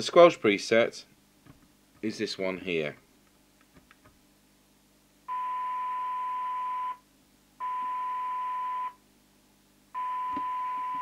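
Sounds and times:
steady test tone through radio speaker: 0:10.0 - 0:11.0.

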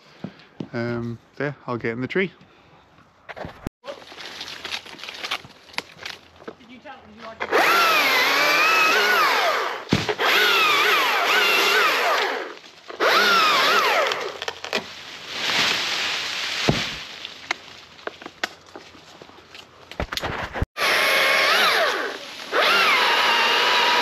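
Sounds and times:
chainsaw cutting wood: 0:07.4 - 0:14.9, 0:20.8 - 0:24.0.

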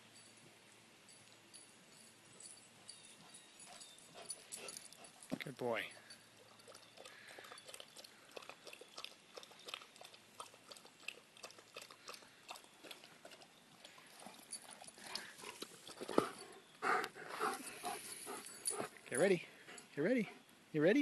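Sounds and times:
dog lapping water: 0:06.4 - 0:16.2.

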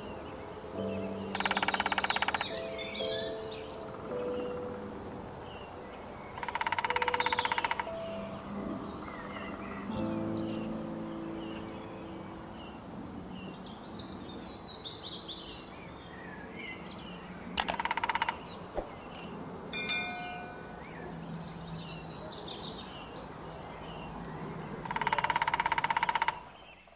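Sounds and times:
birds chirping: 0:00.0 - 0:26.9
woodpecker drumming on tree: 0:01.3 - 0:02.6, 0:06.3 - 0:08.0, 0:17.5 - 0:20.6, 0:24.7 - 0:26.8.

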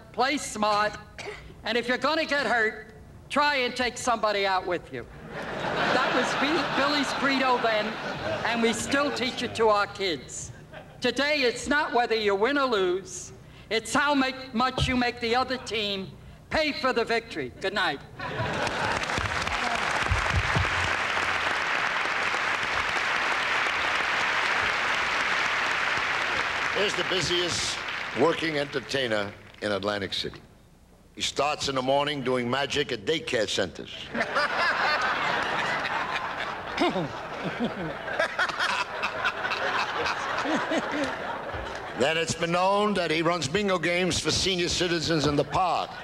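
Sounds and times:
audience laughing: 0:05.2 - 0:09.6, 0:18.2 - 0:20.0, 0:34.1 - 0:42.0
audience applauding: 0:18.4 - 0:29.6.

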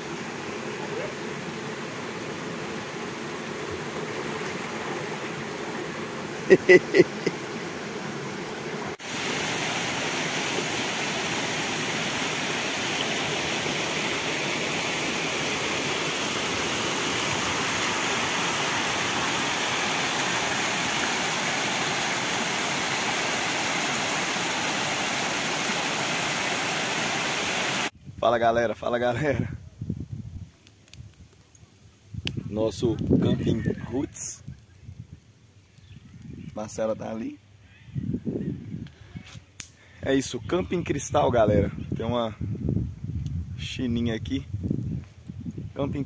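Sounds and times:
waterfall rushing over rock: 0:08.8 - 0:27.9.

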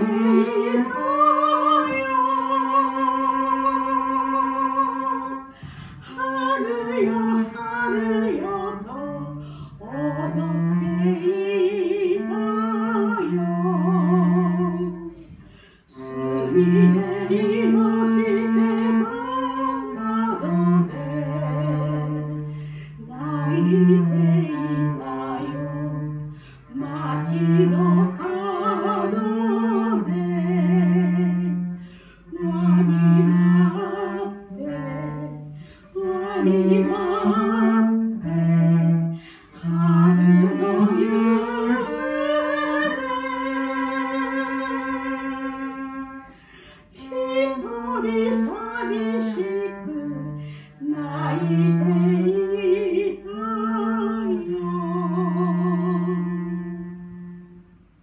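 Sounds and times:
woman singing with vibrato: 0:00.0 - 0:15.2, 0:15.9 - 0:57.5
cello low held notes: 0:00.0 - 0:58.0.

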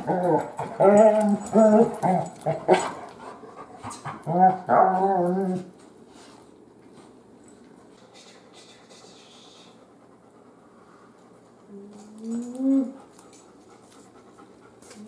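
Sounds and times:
dog whining growls: 0:00.0 - 0:02.8, 0:04.2 - 0:05.7, 0:11.7 - 0:13.0.

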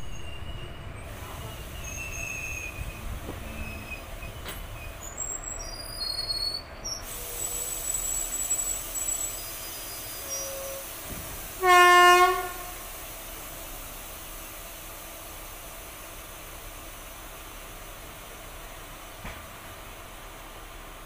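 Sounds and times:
train wheels squealing: 0:00.0 - 0:11.1
locomotive horn: 0:11.6 - 0:12.8.

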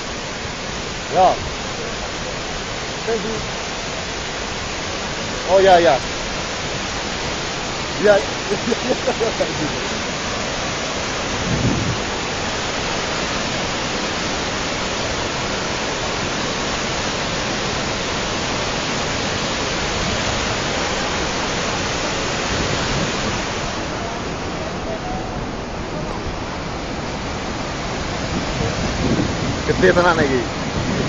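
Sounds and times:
muddy torrent rushing over rocks: 0:00.0 - 0:31.0.

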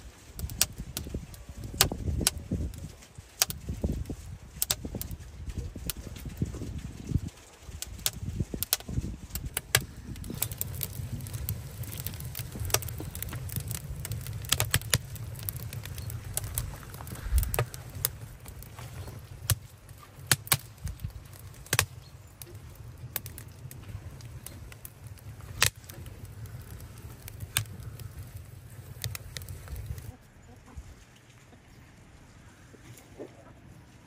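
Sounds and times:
wood fire crackling and popping: 0:00.0 - 0:30.2
low steady rumble: 0:00.0 - 0:34.0.

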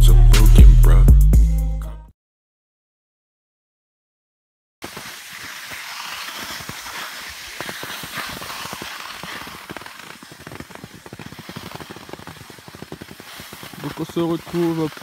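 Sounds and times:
crackling clicks: 0:04.8 - 0:15.0
skis scraping over packed snow: 0:04.8 - 0:15.0.

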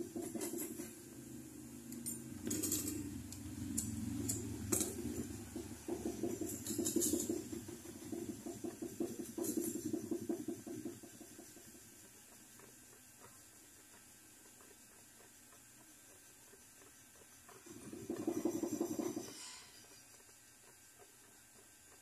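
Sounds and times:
gas torch fluttering: 0:00.0 - 0:22.0
light metallic clinks: 0:01.9 - 0:03.1.

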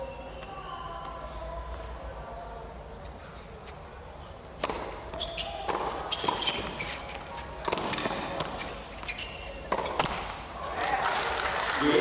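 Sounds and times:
tennis ball bouncing: 0:04.5 - 0:10.4
shoe squeaks on court: 0:04.6 - 0:10.3
racquet hitting tennis ball: 0:04.6 - 0:10.5.

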